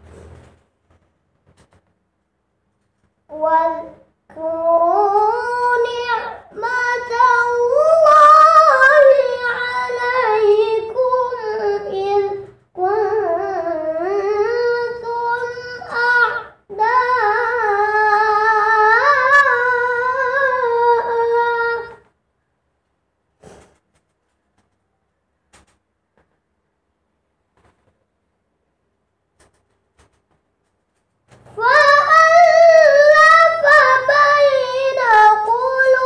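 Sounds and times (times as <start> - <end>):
boy reciting melodically: 2.9 - 22.2, 29.5 - 36.0.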